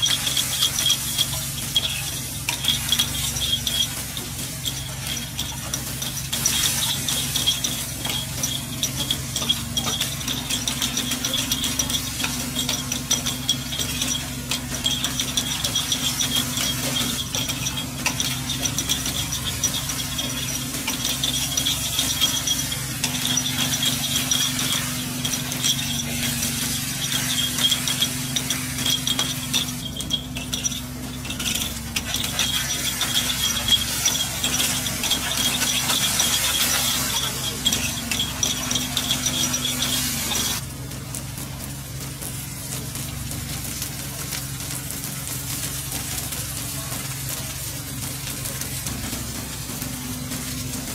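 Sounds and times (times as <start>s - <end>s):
metal utensils scraping pan: 0.0s - 40.6s
faint frying: 0.0s - 50.9s
high fluttering whine: 0.0s - 50.9s.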